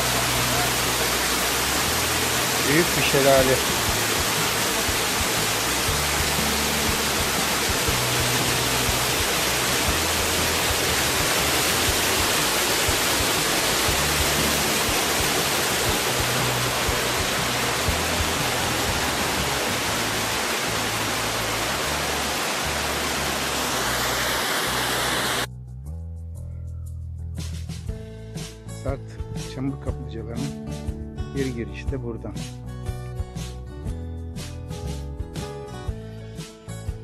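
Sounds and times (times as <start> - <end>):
waterfall rushing into pool: 0.0 - 25.5.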